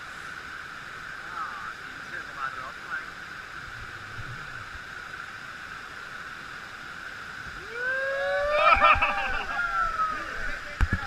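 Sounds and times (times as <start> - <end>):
waterfall rushing: 0.0 - 11.0
people whooping and yelling: 7.6 - 10.8.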